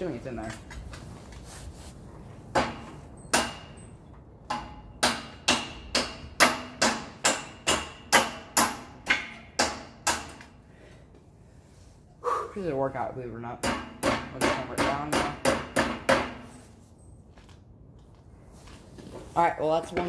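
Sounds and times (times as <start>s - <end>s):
hammer driving nail into wood: 4.5s - 10.5s, 13.6s - 16.5s.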